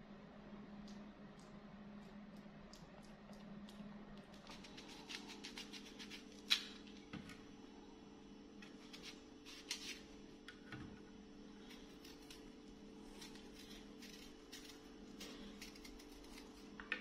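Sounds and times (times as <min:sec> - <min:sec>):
steady low hum: 0:00.0 - 0:17.0
knife cutting crisp apple: 0:04.3 - 0:06.9, 0:08.6 - 0:10.1, 0:11.7 - 0:16.8.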